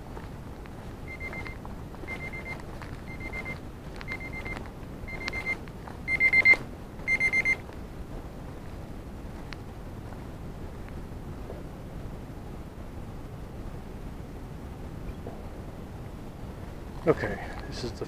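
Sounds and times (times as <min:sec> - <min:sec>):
digital timer alarm beeping: 0:01.1 - 0:07.6.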